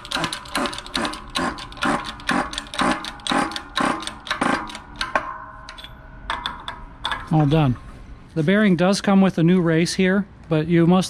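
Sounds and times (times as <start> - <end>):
hydraulic jack pumping click-clack: 0.0 - 6.5
short metallic ring: 5.2 - 6.3.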